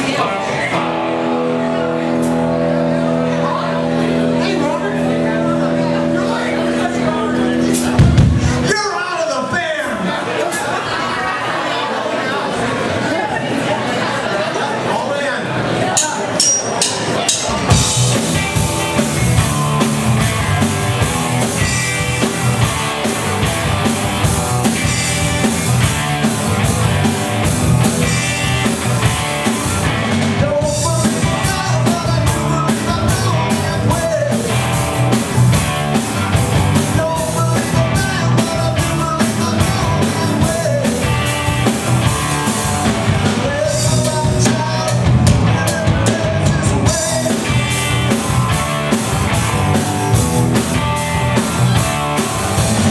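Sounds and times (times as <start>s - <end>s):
electric guitars: 0.0s - 8.7s, 17.5s - 52.9s
drum kit beat: 7.6s - 8.8s, 16.0s - 52.9s
man singing lead: 27.8s - 52.9s.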